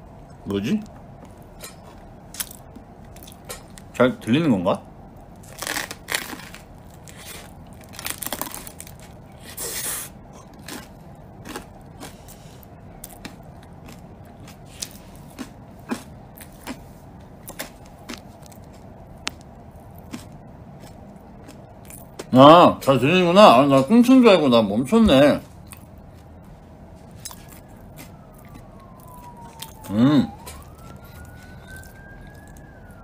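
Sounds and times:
crunchy bread being chewed: 1.2s - 3.9s, 5.1s - 22.4s, 25.4s - 33.0s.

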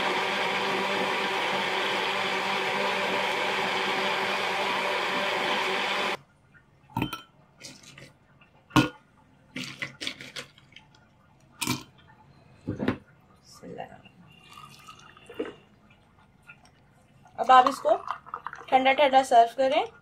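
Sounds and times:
blender running: 0.0s - 6.2s.

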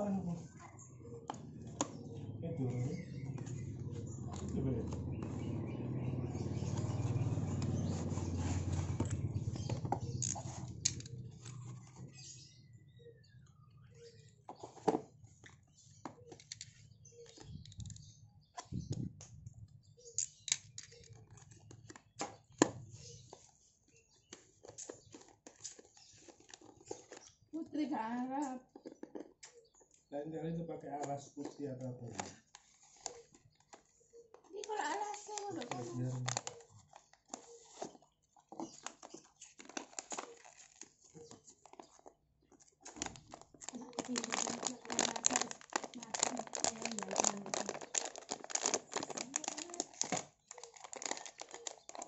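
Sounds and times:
cardboard box being handled: 6.8s - 10.7s
packaging rustling and crinkling: 21.1s - 27.5s, 31.4s - 52.0s
small crackles and clicks: 38.6s - 52.0s.

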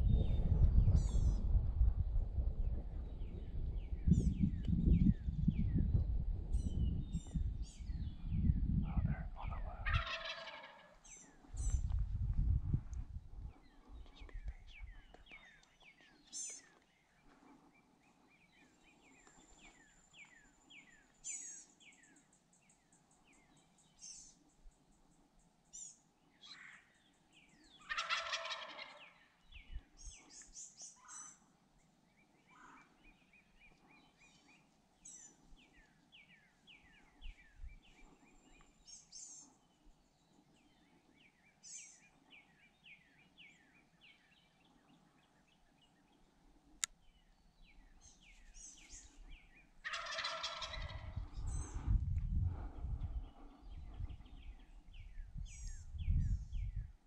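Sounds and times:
songbirds chirping: 0.0s - 57.0s
turkey gobbling: 8.9s - 11.0s, 27.8s - 29.2s, 49.8s - 51.2s.

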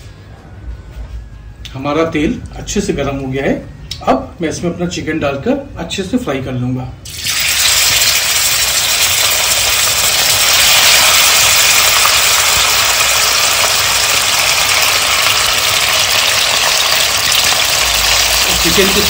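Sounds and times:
chicken sizzling in hot oil: 7.0s - 19.0s.

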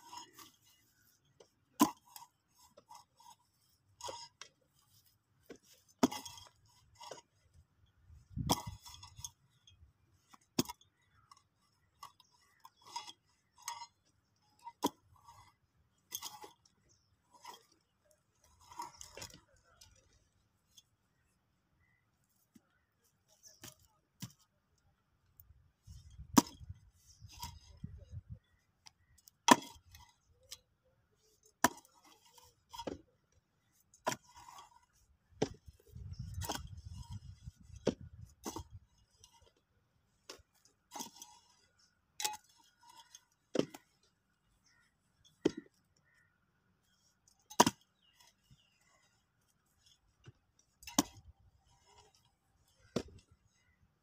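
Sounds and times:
hoe striking hard earth: 0.0s - 3.2s, 5.4s - 9.6s, 10.3s - 17.8s, 25.9s - 28.3s, 29.1s - 30.6s, 31.5s - 33.0s, 33.8s - 39.6s, 40.3s - 44.1s, 44.7s - 46.1s, 47.4s - 49.0s, 49.8s - 53.8s.

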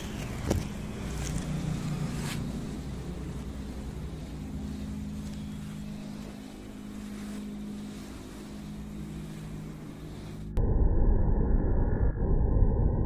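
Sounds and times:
ceiling fan motor hum: 0.0s - 11.5s
low rumble: 7.0s - 13.0s.

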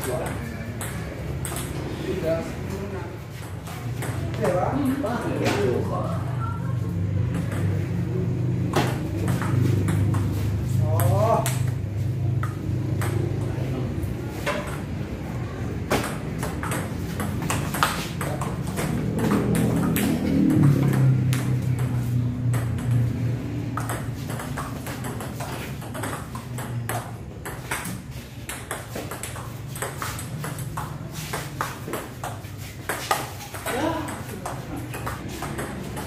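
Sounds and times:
table tennis ball tapping: 0.0s - 1.8s, 7.2s - 7.8s, 8.7s - 10.4s, 12.4s - 13.5s, 15.9s - 36.0s.

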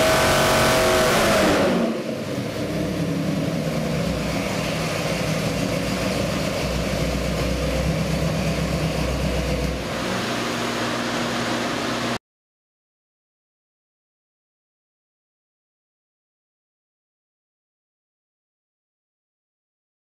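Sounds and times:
engine revving then idling: 0.0s - 12.2s.

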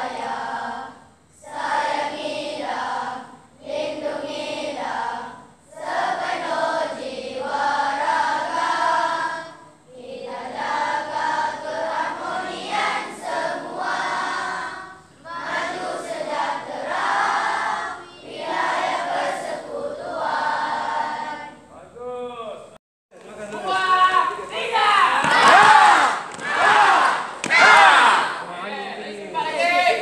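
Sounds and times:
children singing in unison: 0.0s - 21.6s.

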